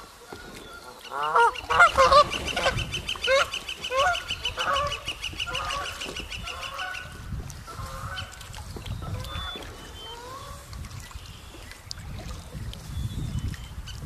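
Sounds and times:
goose honking: 1.1s - 7.1s.

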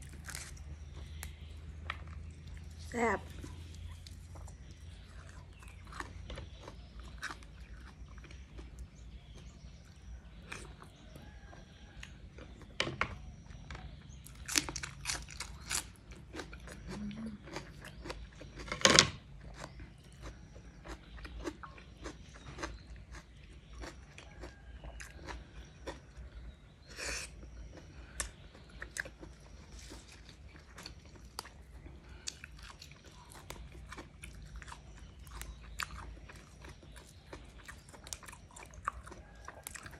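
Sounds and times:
person chewing crunchy greens: 0.0s - 39.9s.

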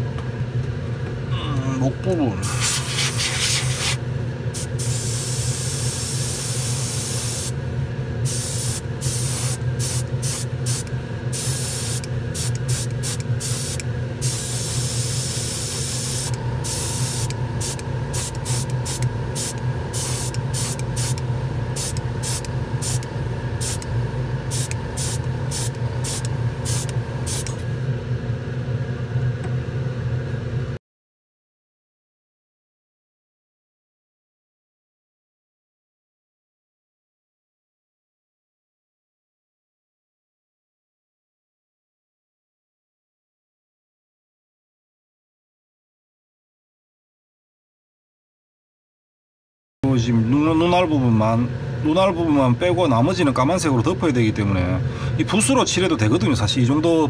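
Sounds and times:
airbrush spraying hiss: 2.4s - 4.0s, 4.6s - 7.6s, 8.3s - 21.2s, 21.8s - 23.9s, 24.5s - 27.6s
low motor hum: 7.6s - 30.8s.

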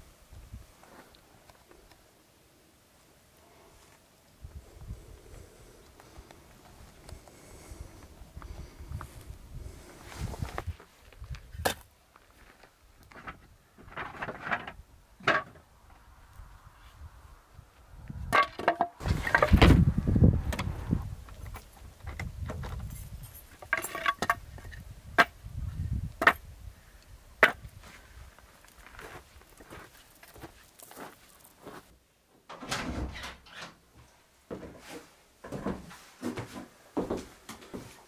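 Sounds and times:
scraping and shuffling: 32.5s - 38.0s.

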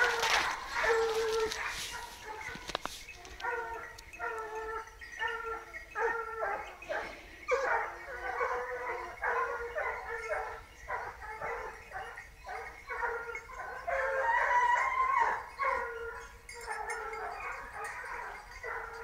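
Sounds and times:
hounds baying: 0.0s - 19.0s.

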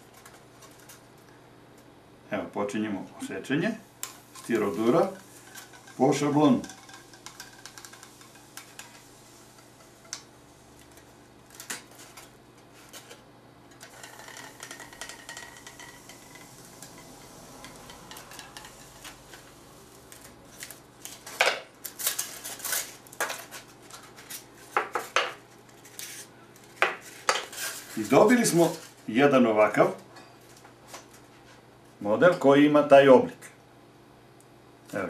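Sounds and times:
hot-wire cutter faint hiss: 3.0s - 12.3s.

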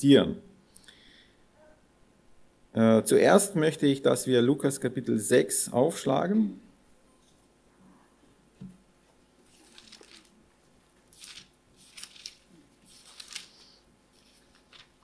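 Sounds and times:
paper pages rustling: 9.4s - 15.0s.

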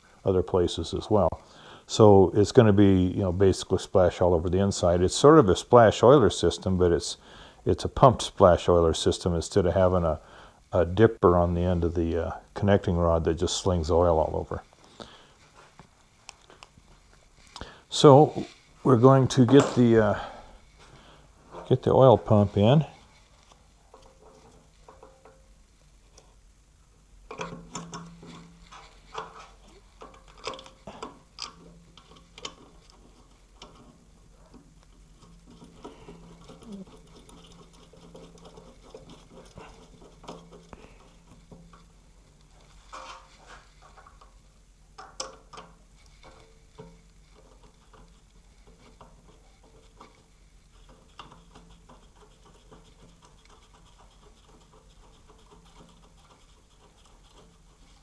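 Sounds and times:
metal parts clicking and scraping: 22.6s - 26.3s, 27.3s - 44.4s.

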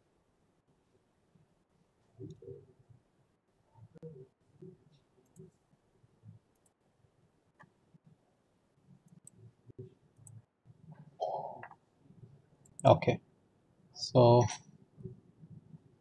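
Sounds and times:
faint clicks: 9.0s - 9.4s.

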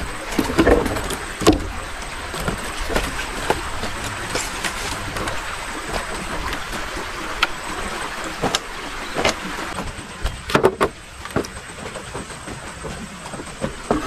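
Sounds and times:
firewood logs set down: 0.0s - 7.7s, 8.3s - 14.0s
boots stepping on bamboo slats: 0.0s - 14.0s
outdoor background noise: 0.0s - 14.0s.

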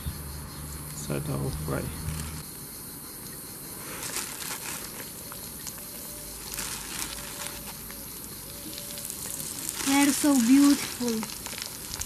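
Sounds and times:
food sizzling in frying oil: 8.6s - 12.0s.

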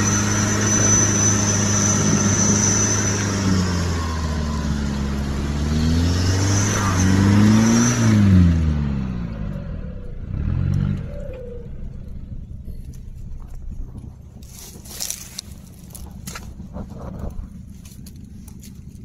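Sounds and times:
engine revving under load: 0.0s - 13.8s.

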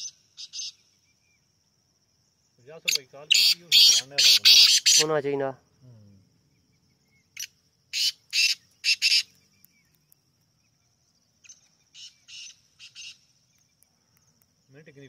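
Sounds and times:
bird rasping call: 2.9s - 5.2s, 7.2s - 9.3s.

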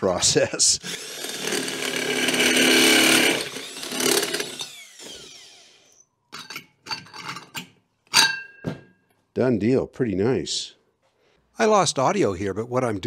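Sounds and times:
drill spinning down: 0.8s - 6.2s
drill cutting ringing steel bowl: 0.8s - 6.6s.

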